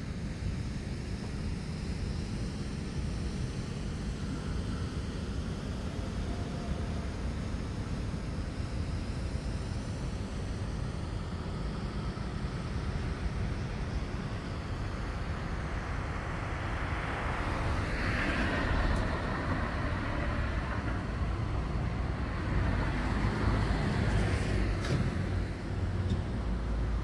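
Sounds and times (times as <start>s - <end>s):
traffic rumble: 15.2s - 27.0s.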